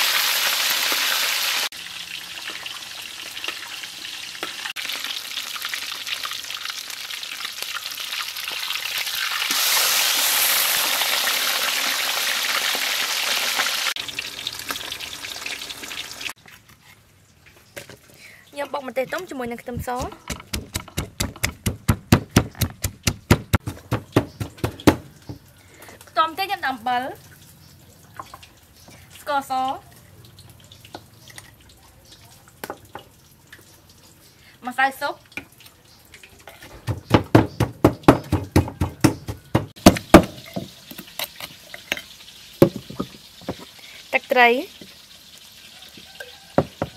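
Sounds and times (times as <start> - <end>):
pestle pounding in a mortar: 19.8 - 25.1, 36.8 - 40.8.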